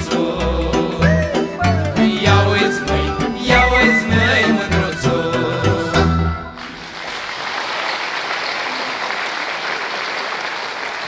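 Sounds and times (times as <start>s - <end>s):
audience applause: 6.6s - 11.0s.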